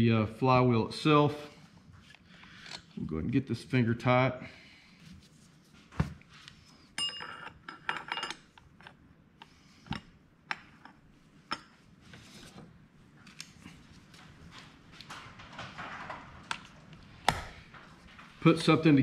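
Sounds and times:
metal tools clinking on workbench: 7.0s - 9.0s.

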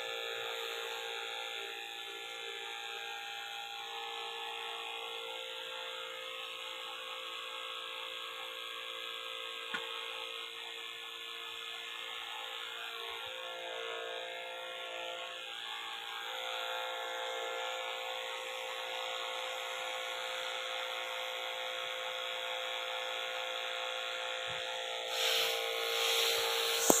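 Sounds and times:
spray pump whining: 24.4s - 27.0s
spray hissing: 25.1s - 27.0s.

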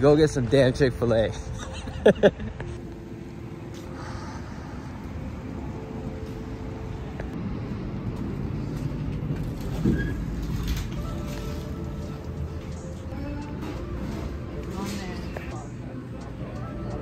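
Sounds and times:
traffic: 0.0s - 17.0s
glass door pulled open: 9.4s - 11.7s.

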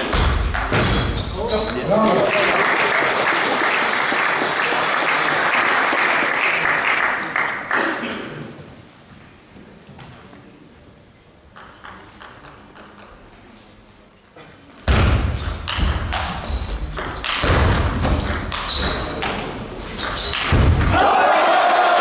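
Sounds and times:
sneakers squeaking on floor: 0.0s - 1.9s, 14.9s - 20.5s
loud crowd noise: 0.0s - 9.0s, 17.4s - 22.0s
table tennis ball strikes: 14.9s - 19.4s.

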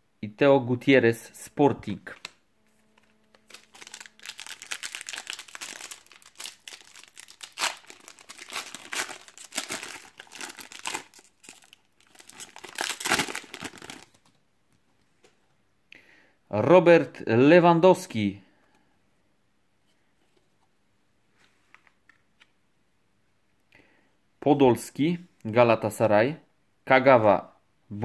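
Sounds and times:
plastic wrapper crinkling and tearing: 2.2s - 14.4s.

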